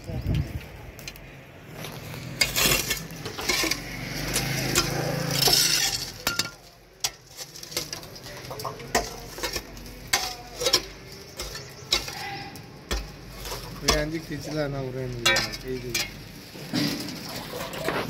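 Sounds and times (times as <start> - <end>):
loose dirt falling: 0.0 - 18.0
hoe chopping and scraping soil: 1.7 - 6.2.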